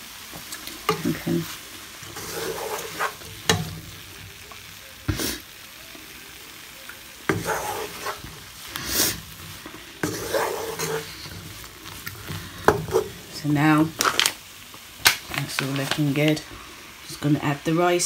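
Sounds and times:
food sizzling: 0:00.0 - 0:18.0
wooden spoon scraping frying pan: 0:00.4 - 0:04.2, 0:07.3 - 0:14.3.

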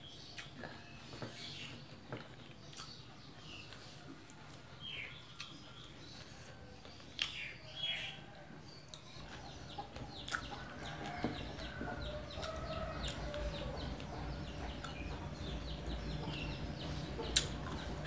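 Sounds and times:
eating clicks and smacks: 0:00.2 - 0:01.4, 0:02.1 - 0:04.6, 0:06.8 - 0:07.5, 0:08.9 - 0:16.6, 0:17.2 - 0:18.0
chickens clucking: 0:03.2 - 0:18.0.

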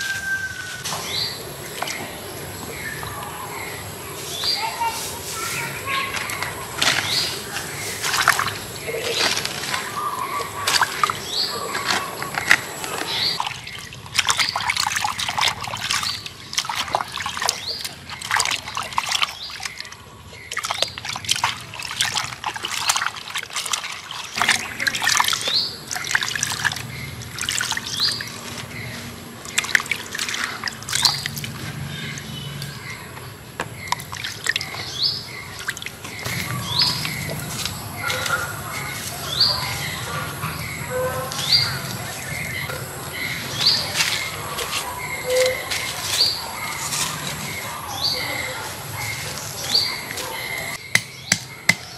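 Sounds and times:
water splashing in a bowl: 0:05.4 - 0:40.1
water trickling: 0:05.7 - 0:38.8.

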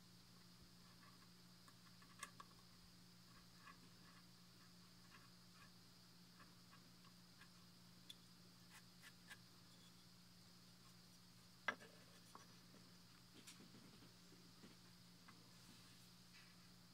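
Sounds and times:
low steady hum: 0:00.0 - 0:16.9.

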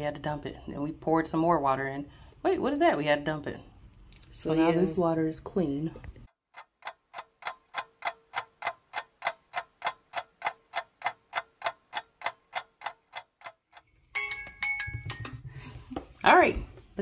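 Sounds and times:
timer ticking: 0:06.5 - 0:14.6.

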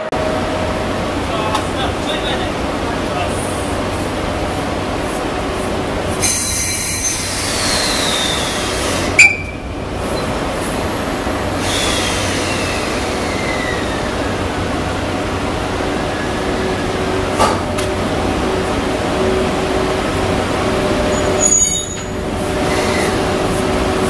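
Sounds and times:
locomotive hum: 0:00.0 - 0:24.0
wheel squeals: 0:06.2 - 0:10.4, 0:21.0 - 0:23.3.

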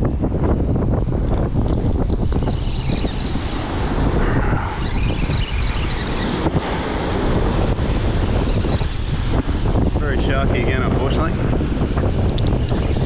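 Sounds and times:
wind buffeting microphone: 0:00.0 - 0:13.0
breaking surf: 0:02.2 - 0:12.7.

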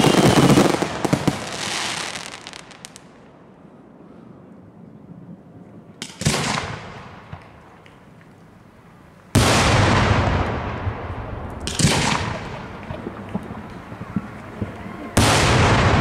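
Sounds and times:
firework shells bursting: 0:09.4 - 0:16.0
faint crackling: 0:11.2 - 0:15.3.

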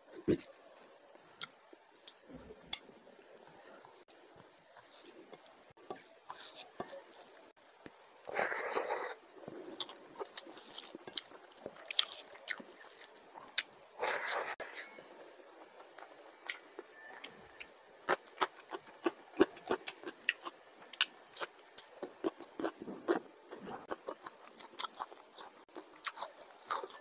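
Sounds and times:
wet chewing and lip-smacking: 0:09.7 - 0:13.7, 0:15.2 - 0:27.0.

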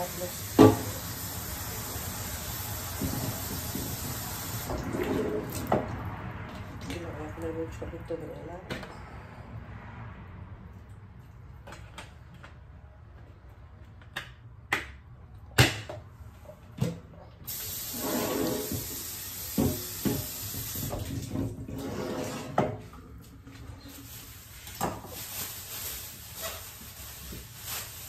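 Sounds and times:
kitchen tap running: 0:00.0 - 0:05.9, 0:17.5 - 0:21.8
plastic bag rustling: 0:23.6 - 0:28.0.

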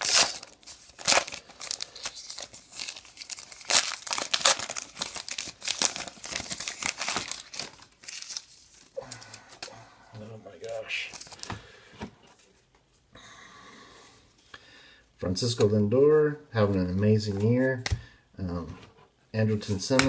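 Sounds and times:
wrapper tearing and crinkling: 0:00.0 - 0:09.7.

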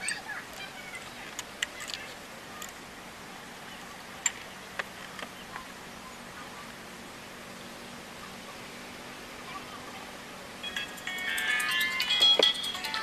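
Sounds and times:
tools clicking and tapping: 0:10.8 - 0:13.0.

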